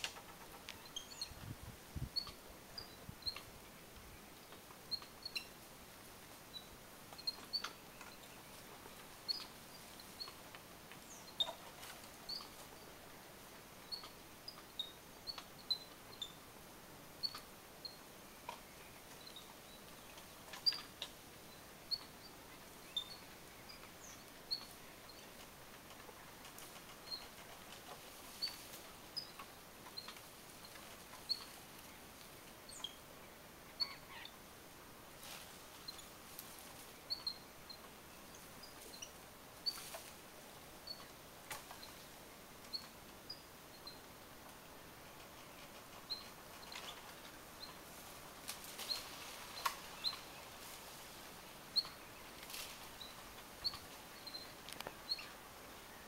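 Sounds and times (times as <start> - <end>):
high-pitched animal chirps: 33.8 - 34.3
soft clicks: 54.6 - 55.0.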